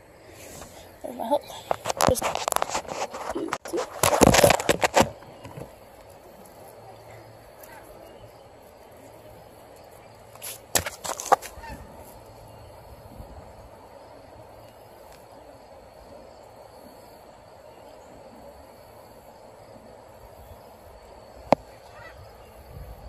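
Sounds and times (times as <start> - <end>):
faint outdoor background: 0.0 - 23.0
knocks and rustles of handling: 1.5 - 5.8, 10.4 - 11.6.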